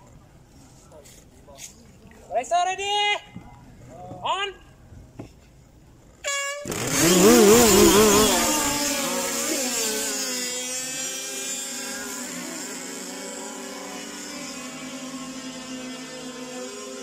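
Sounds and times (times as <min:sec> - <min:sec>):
short horn-like beep: 0:06.2 - 0:06.8
model powerboat motors: 0:06.3 - 0:17.0.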